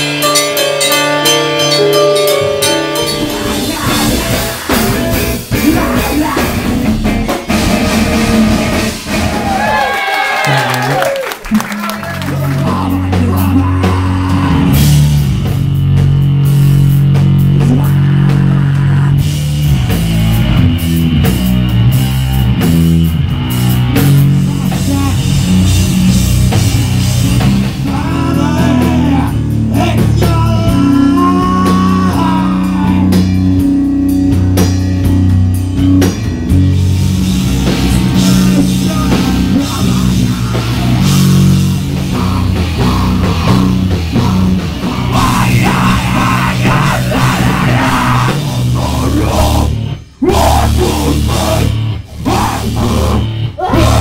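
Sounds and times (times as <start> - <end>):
drums: 0.0 - 54.0
distorted low droning notes: 1.6 - 9.8, 11.6 - 54.0
person shouting into a microphone: 17.6 - 19.2, 42.1 - 54.0.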